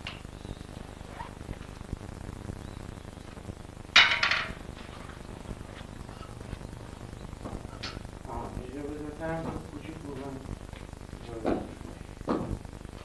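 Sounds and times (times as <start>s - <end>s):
small ticks: 0.0s - 3.6s
faint steady hiss: 0.0s - 13.0s.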